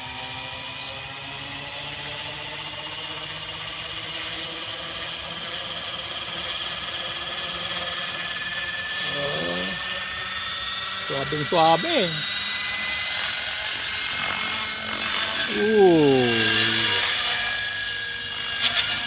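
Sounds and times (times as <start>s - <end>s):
rc helicopter motor whine: 0.0s - 19.0s
rotor whoosh: 14.0s - 17.7s.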